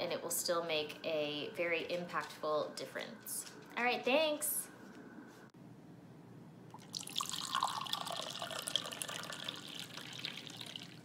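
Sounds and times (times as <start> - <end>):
coffee pouring into a glass: 6.7 - 11.0.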